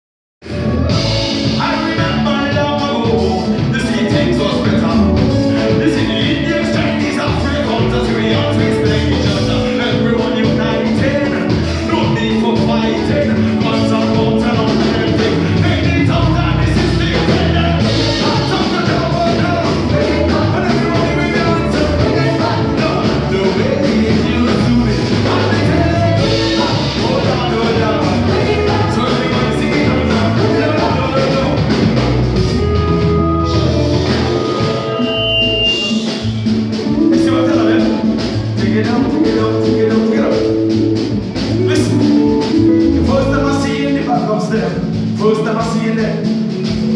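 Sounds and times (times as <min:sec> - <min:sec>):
drum kit: 0:00.4 - 0:46.9
electric bass guitar: 0:00.4 - 0:46.9
live band music: 0:00.4 - 0:46.9
person singing: 0:00.4 - 0:46.9.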